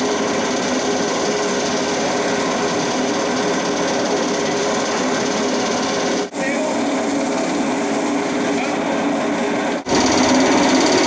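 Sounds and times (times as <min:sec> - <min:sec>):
machine rattling and humming: 0:00.0 - 0:11.0.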